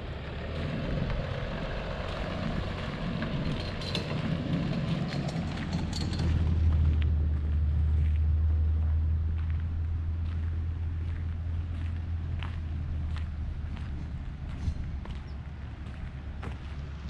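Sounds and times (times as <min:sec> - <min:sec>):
wind buffeting microphone: 0:11.0 - 0:17.0.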